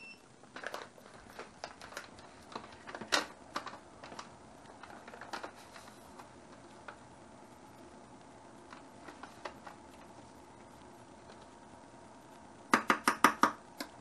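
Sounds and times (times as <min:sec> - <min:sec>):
plastic pouch crinkling: 0:00.4 - 0:07.1.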